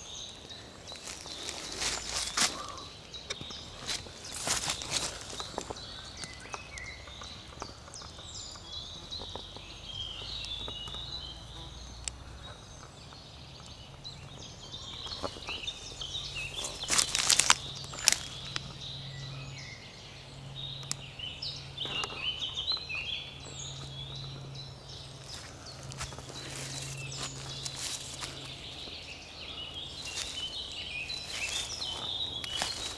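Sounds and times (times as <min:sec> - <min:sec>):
songbirds singing: 0:00.0 - 0:32.9
footsteps in leaf litter: 0:00.6 - 0:02.9, 0:03.6 - 0:06.5, 0:15.2 - 0:18.6, 0:25.2 - 0:29.0, 0:29.8 - 0:32.9.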